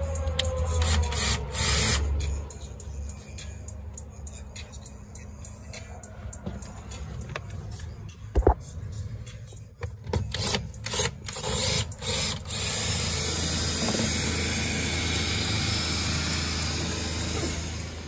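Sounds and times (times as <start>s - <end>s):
power drill whirring: 10.4s - 18.0s.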